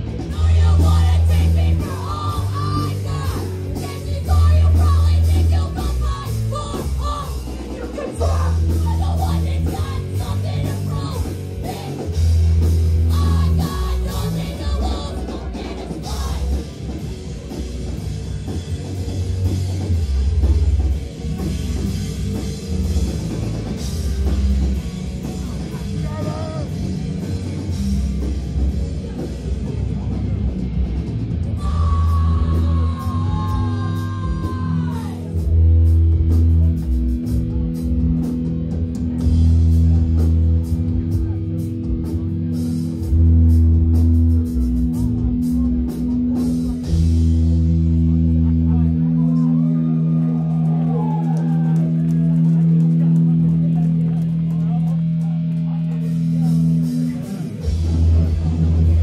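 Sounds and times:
distorted electric guitar: 0.0s - 59.0s
drum kit: 0.0s - 59.0s
heavy bass: 0.0s - 59.0s
person singing: 0.3s - 12.2s, 13.1s - 16.7s, 31.6s - 35.3s.

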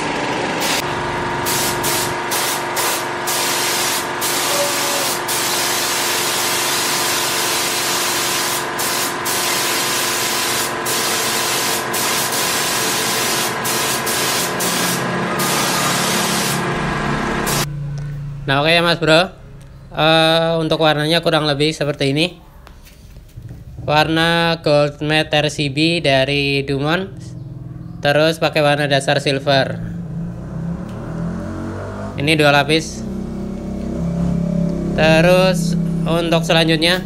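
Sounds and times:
motor hum: 0.0s - 18.7s
spray gun hissing: 0.6s - 16.7s, 17.4s - 17.7s.

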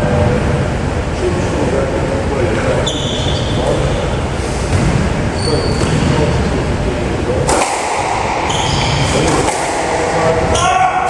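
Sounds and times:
shoe squeaks on wooden floor: 2.8s - 3.8s, 5.4s - 6.1s, 8.5s - 9.1s.

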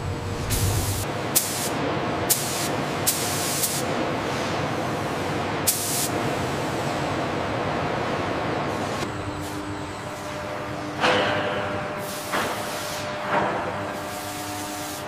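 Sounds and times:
spray gun hissing bursts: 0.5s - 6.8s.

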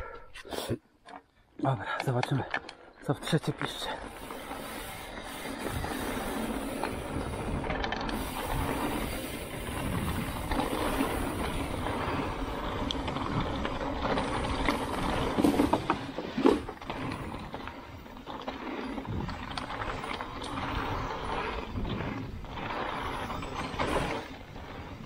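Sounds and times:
bike tyres rattling over rough ground: 2.1s - 25.0s.

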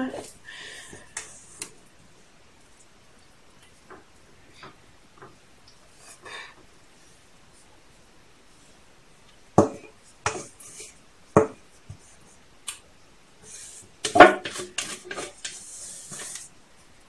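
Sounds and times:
spatula scraping mixing bowl: 9.6s - 11.0s, 13.4s - 16.5s
spatula tapping bowl: 9.6s - 12.0s, 14.0s - 16.4s.

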